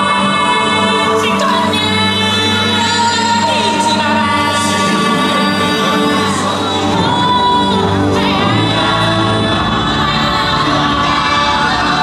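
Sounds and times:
choir singing: 0:00.0 - 0:12.0
loud music with singing: 0:00.0 - 0:12.0.

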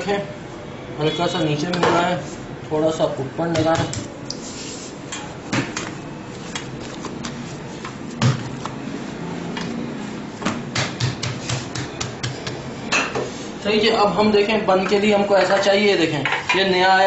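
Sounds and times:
hands slapping dough: 0:03.5 - 0:04.4, 0:05.1 - 0:08.8, 0:10.4 - 0:13.3.

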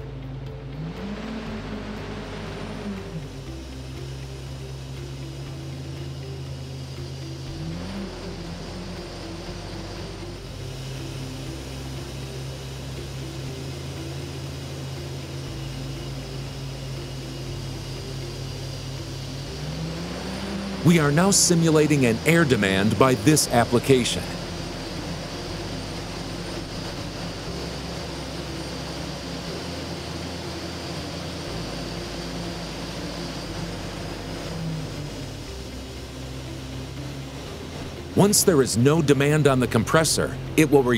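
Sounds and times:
diesel engine droning: 0:00.0 - 0:40.9
high hiss: 0:00.8 - 0:40.9.

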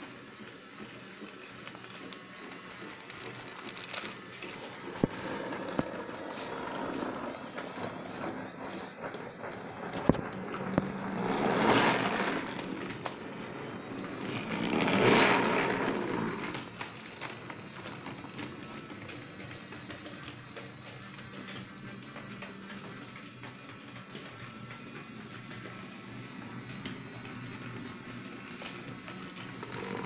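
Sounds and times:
toy motor whir: 0:00.0 - 0:10.2, 0:11.0 - 0:30.0
wheels rattling on wooden track: 0:05.0 - 0:19.4.

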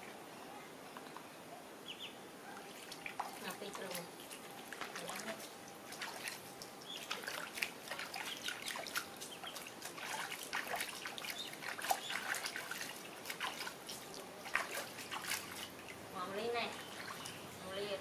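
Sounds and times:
water splashing in plastic tub: 0:02.6 - 0:17.9.

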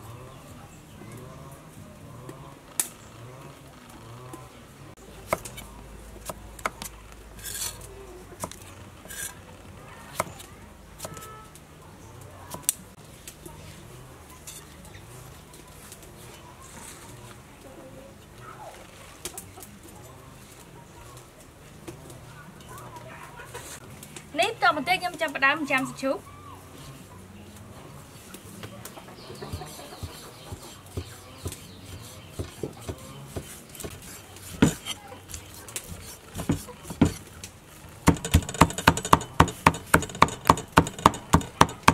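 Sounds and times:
cleaver knocking on wood: 0:30.5 - 0:34.0, 0:34.6 - 0:34.9, 0:36.4 - 0:37.2, 0:38.1 - 0:41.9.

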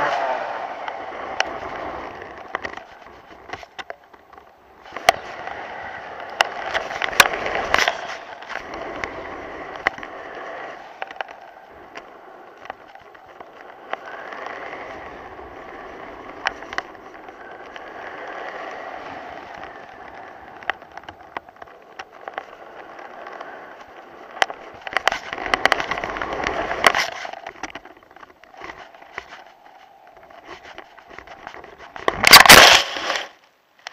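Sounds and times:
kite flapping: 0:00.0 - 0:33.9
wind: 0:00.0 - 0:33.9
kite crashing on grass: 0:30.3 - 0:33.4.

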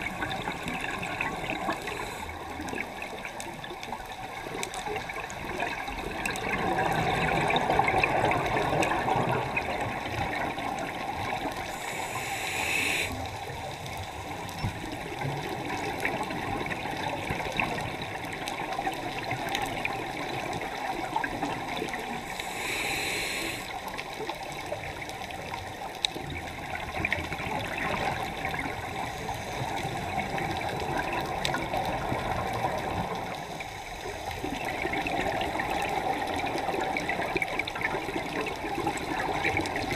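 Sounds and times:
exhaled bubbles underwater: 0:00.0 - 0:39.9
regulator hissing inhalation: 0:00.4 - 0:02.4, 0:11.6 - 0:13.3, 0:22.2 - 0:23.8.

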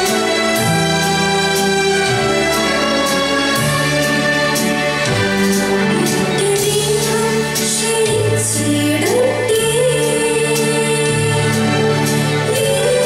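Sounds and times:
instrumental music with bass and beat: 0:00.0 - 0:08.8
women singing: 0:05.9 - 0:13.0.

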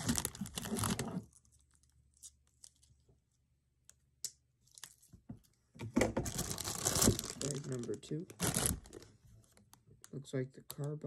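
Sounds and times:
plastic bag crinkling: 0:00.0 - 0:01.8, 0:06.3 - 0:09.1.

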